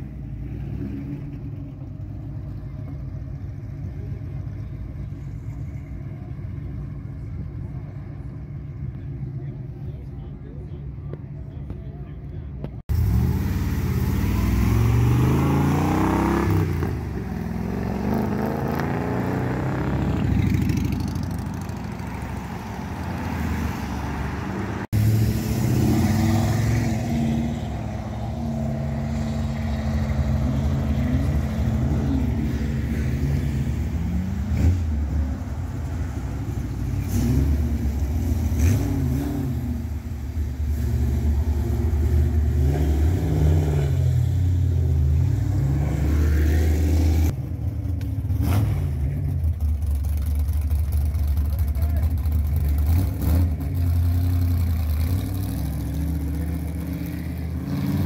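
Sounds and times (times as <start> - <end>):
car engines revving: 0.0 - 58.0
hot rod engine running: 47.9 - 57.8.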